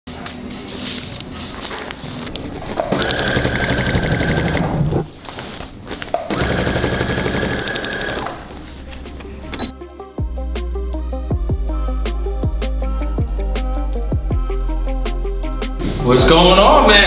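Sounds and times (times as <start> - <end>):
sewing machine stitching: 2.9 - 5.1, 6.3 - 8.4.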